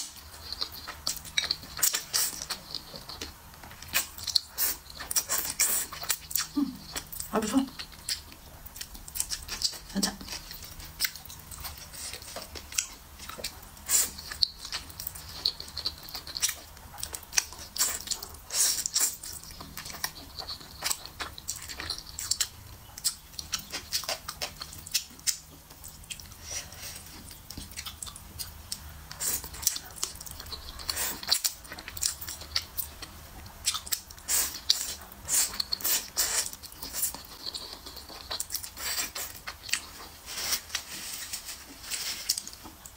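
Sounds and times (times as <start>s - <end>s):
chewing mouth sounds: 0.0s - 42.9s.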